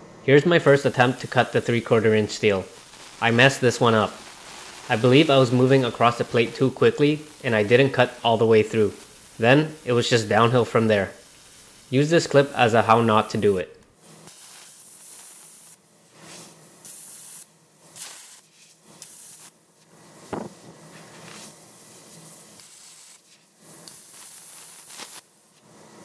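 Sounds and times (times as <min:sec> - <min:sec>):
plasma cutter hissing: 0:00.5 - 0:26.0
knock: 0:20.3 - 0:20.5.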